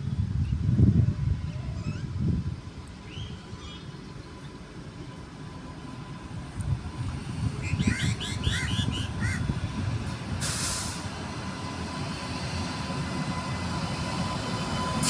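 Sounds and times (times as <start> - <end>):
train approaching rumble: 0.0 - 15.0
bird calling: 7.6 - 9.5
brief hiss: 10.4 - 11.1.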